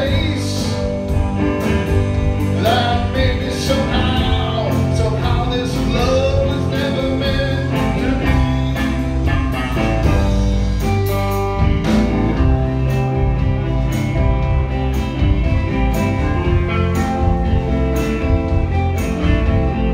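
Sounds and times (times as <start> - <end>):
man singing: 0.0 - 1.2, 2.2 - 9.2
live rock band playing: 0.0 - 19.9.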